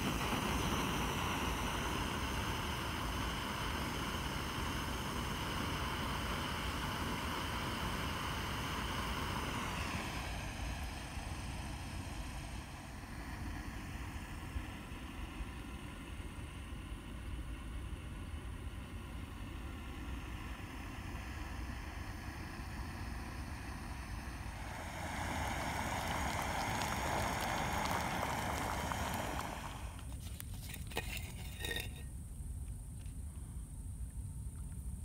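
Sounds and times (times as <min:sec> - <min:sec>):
low outdoor rumble: 0:00.0 - 0:35.0.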